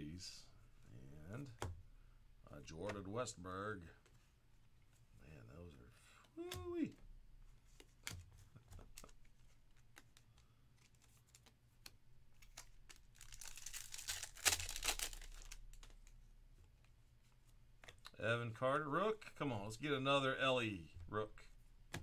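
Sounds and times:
foil wrapper crinkling and tearing: 12.4s - 16.0s.

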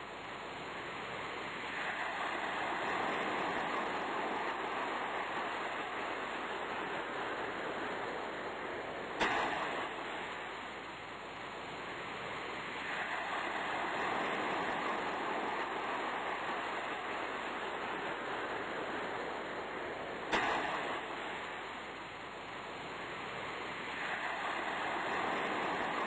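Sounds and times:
sea surf washing: 0.0s - 26.0s
sharp click: 9.2s - 9.8s, 20.3s - 21.0s.

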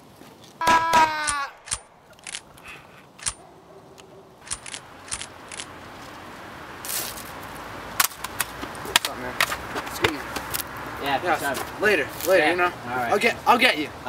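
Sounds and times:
handgun clicks: 1.2s - 3.4s, 4.0s - 5.7s.

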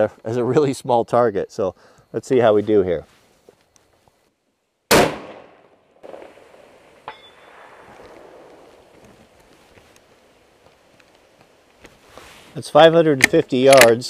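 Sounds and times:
rifle shot: 4.9s - 8.9s
bullet ringing steel target: 7.0s - 8.5s.

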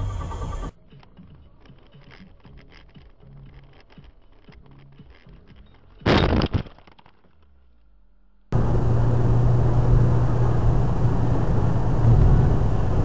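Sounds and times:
car driving on snowy road: 8.5s - 13.0s.

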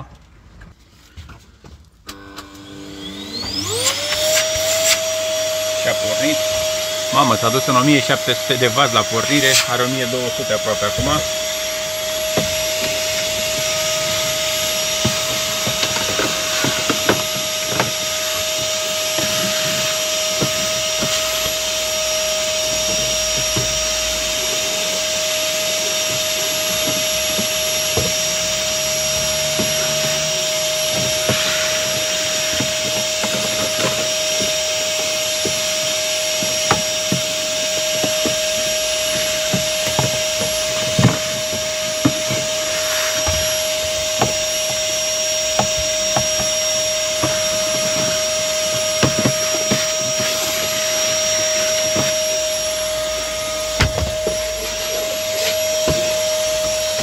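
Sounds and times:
vacuum cleaner running: 2.0s - 57.0s.

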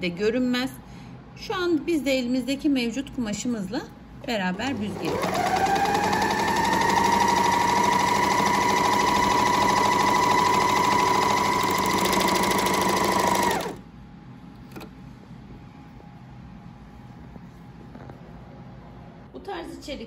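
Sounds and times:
overlock sewing machine running: 4.2s - 13.8s.

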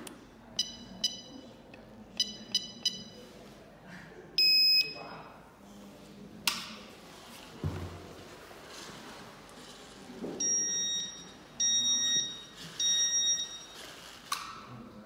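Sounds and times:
short electronic beeps: 2.2s - 3.2s, 4.4s - 5.0s, 10.4s - 13.8s.

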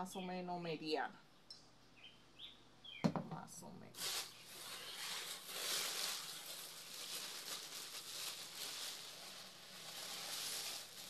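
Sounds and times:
packing paper rustling and crinkling: 3.9s - 11.0s.

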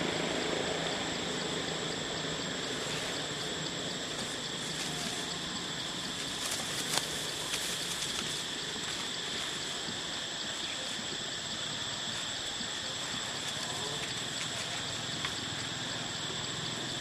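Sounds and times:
faint ticks: 13.4s - 15.4s.

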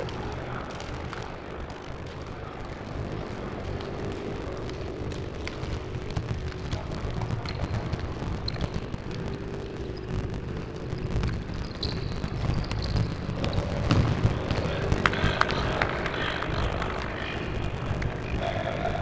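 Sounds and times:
faint hum: 0.0s - 19.0s
sports hall rumble: 0.0s - 19.0s
shoes squeaking on court: 7.2s - 10.0s, 11.1s - 14.6s.

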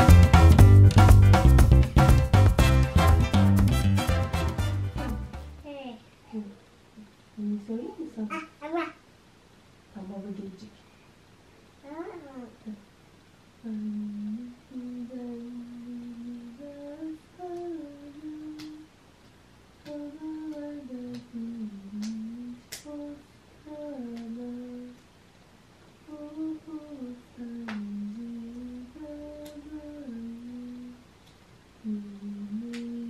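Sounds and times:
woman humming: 13.6s - 18.9s, 19.9s - 25.0s, 26.1s - 31.0s, 31.8s - 33.0s
faint clicks: 18.5s - 23.0s.

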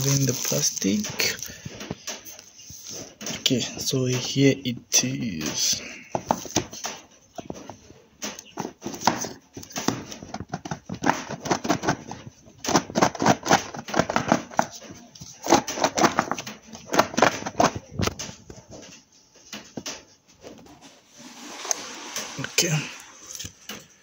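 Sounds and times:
plastic wrapping crinkling: 0.0s - 4.4s.

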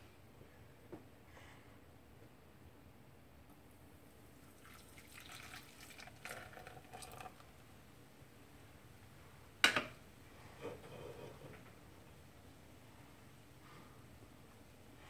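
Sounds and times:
beer pouring into a saucepan: 4.3s - 7.8s.

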